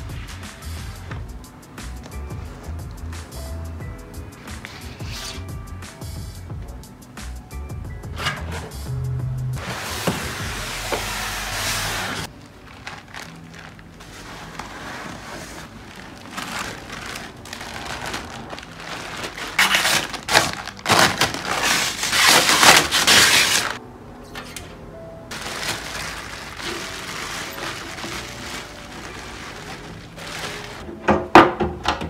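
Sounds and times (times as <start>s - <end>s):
soft background music: 0.0s - 32.0s
plastic wrapping crinkling: 12.2s - 23.8s, 25.3s - 30.8s.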